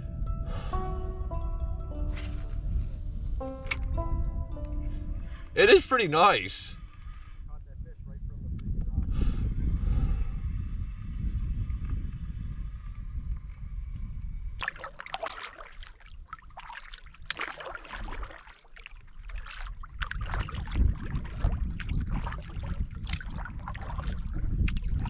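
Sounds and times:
paddle dipping and dripping: 0.0 - 7.0, 14.5 - 25.0
water splashing and trickling: 14.5 - 25.0.

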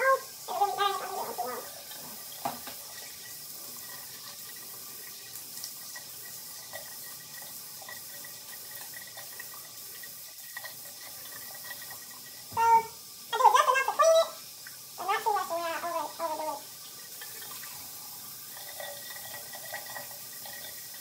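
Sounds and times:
tap running into sink: 1.9 - 4.5, 5.1 - 12.9.

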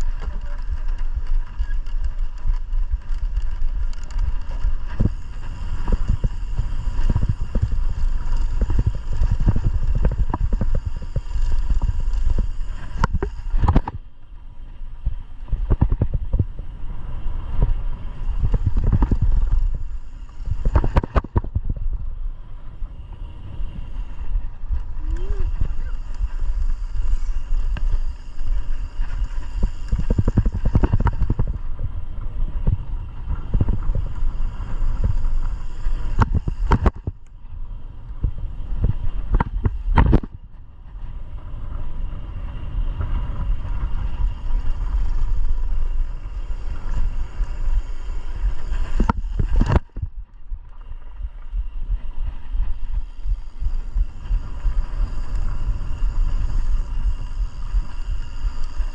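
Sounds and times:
bike rattling and knocking: 0.0 - 14.2, 15.4 - 22.2, 24.6 - 37.3
wind rumble on microphone: 0.0 - 58.9.

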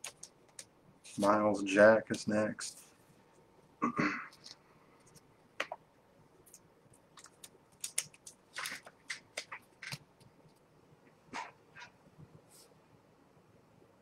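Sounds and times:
cards clicking and scraping: 6.5 - 10.3.

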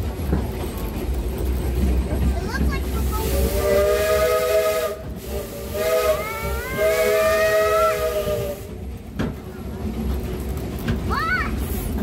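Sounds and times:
moving train rumble: 0.0 - 12.0
steam locomotive whistle: 3.2 - 8.8.

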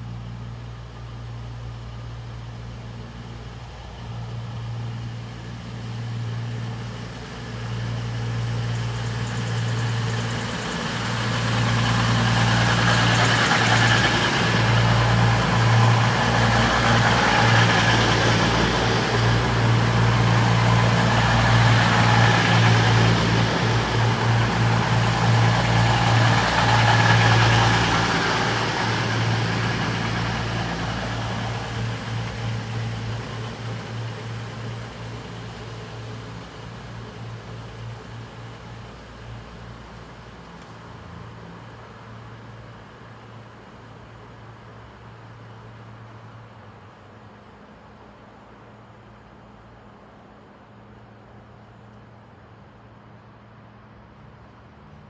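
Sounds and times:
diesel train engine drone: 0.0 - 55.0
train wheels rushing on rails: 1.0 - 46.8.

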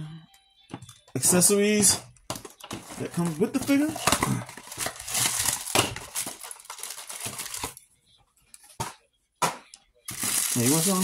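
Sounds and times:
plastic and cardboard crinkling: 1.3 - 7.8, 10.1 - 11.0.

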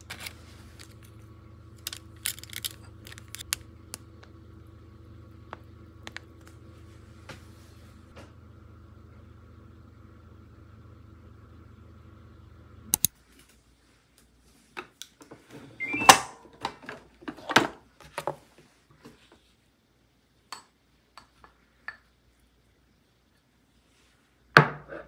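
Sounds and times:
steady low hum: 0.0 - 14.8
short rising beep: 15.8 - 16.2.

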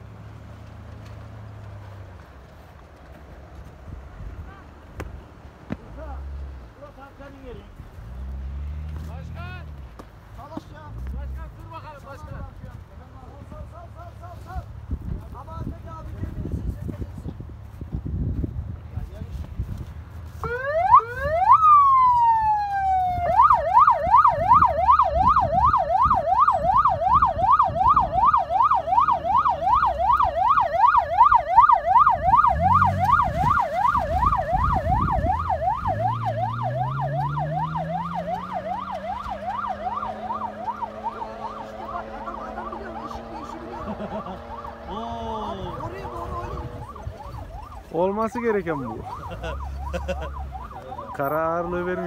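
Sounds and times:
vehicle engine rumbling and revving: 0.0 - 52.0
electronic siren yelping: 20.4 - 52.0.

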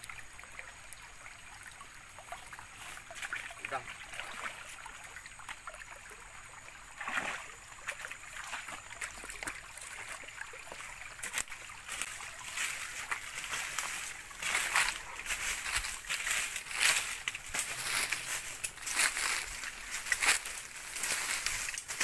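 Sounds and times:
stream trickling: 0.0 - 22.0
footsteps crunching through dry leaves: 11.1 - 22.0.

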